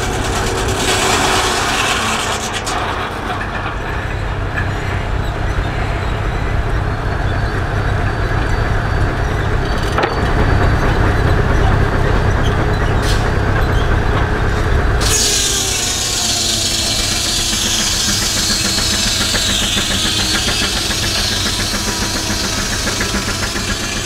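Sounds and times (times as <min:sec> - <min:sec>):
saw rasping through log: 0:00.0 - 0:03.1, 0:15.0 - 0:24.0
low engine rumble: 0:00.0 - 0:24.0.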